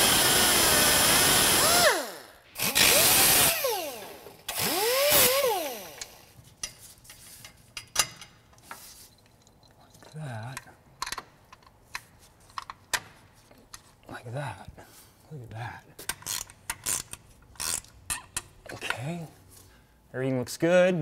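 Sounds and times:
power tool cutting steel rod: 0.0 - 6.2.

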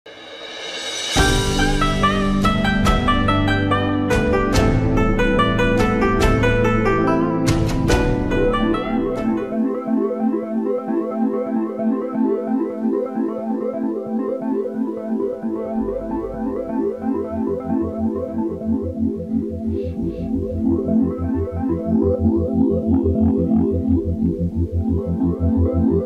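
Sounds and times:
pulsing bass line: 1.2 - 10.1, 15.0 - 26.0
electronic keyboard tune: 1.2 - 26.0.

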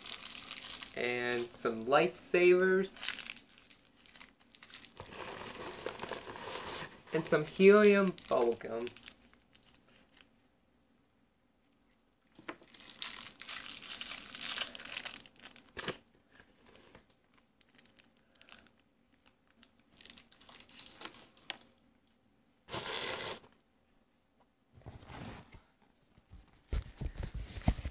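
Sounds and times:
candy packaging crinkling: 0.0 - 1.6, 2.4 - 10.4, 12.3 - 21.8.

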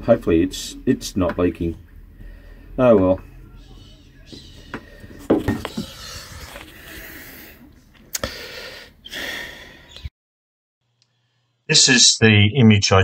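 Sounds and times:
phone microphone handling noise: 4.3 - 6.8.

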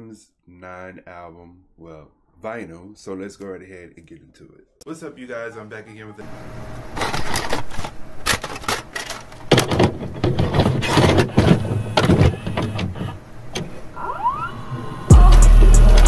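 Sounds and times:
low pulsing beat: 15.1 - 16.0.

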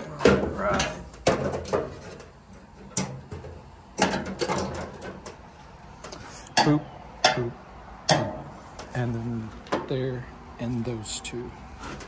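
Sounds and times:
sheet-metal cabinet being handled: 0.0 - 5.4.

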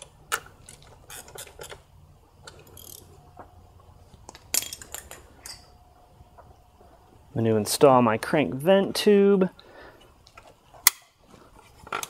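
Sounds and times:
socket ratchet clicking: 2.5 - 3.1.

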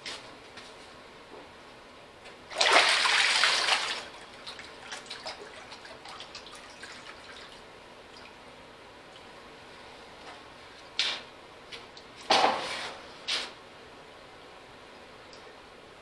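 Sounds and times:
water splashing and pouring: 2.5 - 7.6
water dripping and trickling: 3.9 - 8.4.

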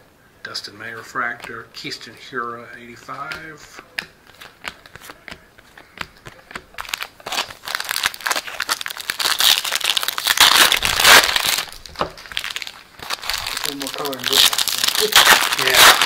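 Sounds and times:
cards clicking while handled: 3.2 - 6.9
foil wrapper crinkling: 5.8 - 16.0.

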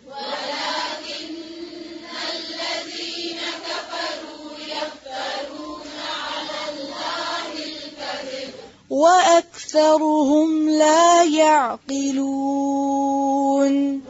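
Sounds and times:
person chanting melodic recitation: 0.0 - 14.0.

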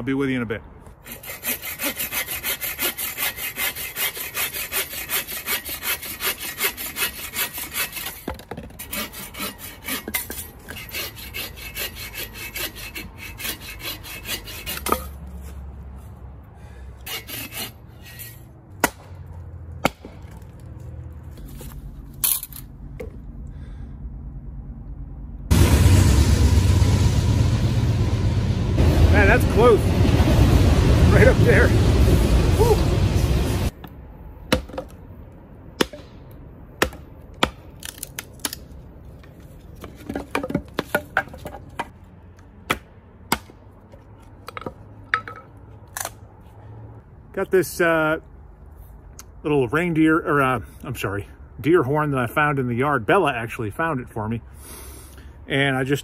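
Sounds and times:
bow saw cutting log: 1.0 - 15.2, 17.0 - 18.4
low steady rumble: 17.9 - 37.4
hatchet chopping wood: 18.8 - 19.2, 19.8 - 20.4, 34.5 - 35.0, 35.8 - 36.2, 36.8 - 38.6, 42.7 - 43.6.

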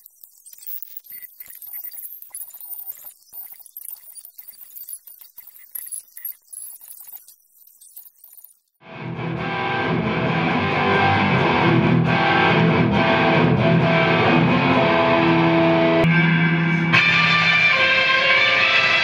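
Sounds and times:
rock music with distorted guitar: 8.8 - 19.0.

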